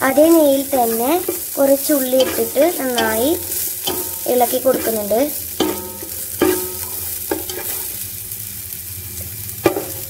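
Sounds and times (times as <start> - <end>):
onions sizzling in a pan: 0.0 - 10.0
utensil knocking and scraping pan: 0.8 - 8.0, 9.7 - 10.0.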